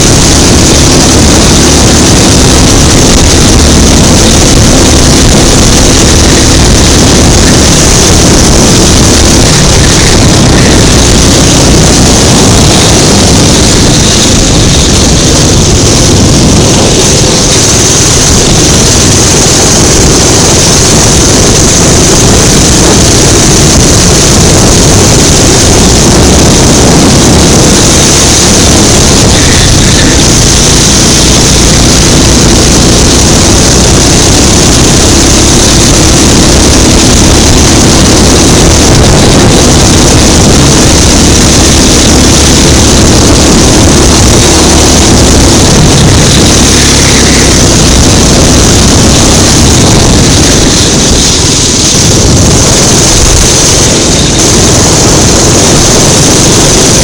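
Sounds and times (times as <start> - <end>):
go-kart engine running hard: 0.0 - 57.0.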